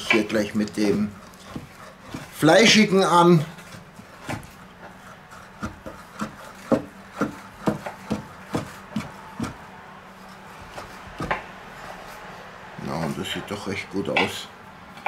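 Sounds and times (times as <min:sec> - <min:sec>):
knife chopping on wooden board: 0:00.1 - 0:02.4, 0:03.8 - 0:04.6, 0:05.3 - 0:09.6, 0:10.6 - 0:11.5.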